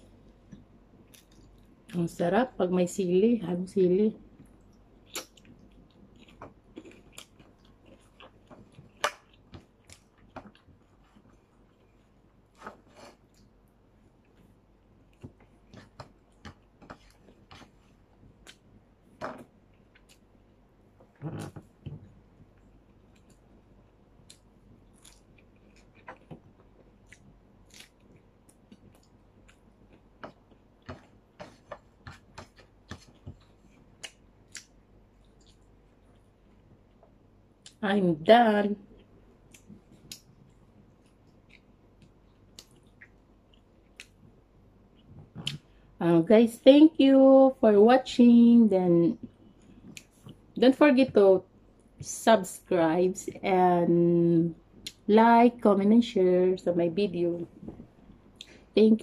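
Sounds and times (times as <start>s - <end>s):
person chewing: 4.4s - 18.7s, 19.4s - 20.3s, 21.0s - 37.8s, 38.9s - 45.7s.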